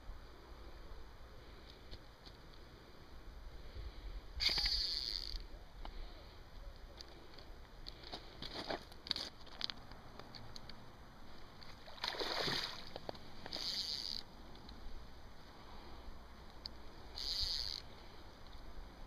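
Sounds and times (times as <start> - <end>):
splashes on river surface: 11.7 - 13.0.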